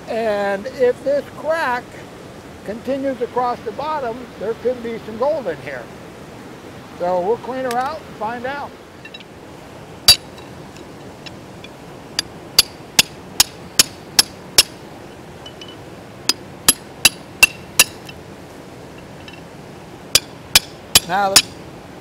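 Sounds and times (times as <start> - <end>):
hammer striking metal tool: 10.1 - 10.4, 12.6 - 14.8, 16.3 - 18.2, 20.2 - 21.6.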